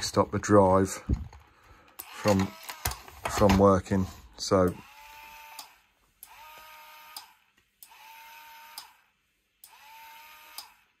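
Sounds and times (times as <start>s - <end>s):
toy car motor whirring: 2.0s - 3.2s, 4.6s - 10.9s
motor click: 5.5s - 8.1s, 8.7s - 9.0s, 10.5s - 10.8s.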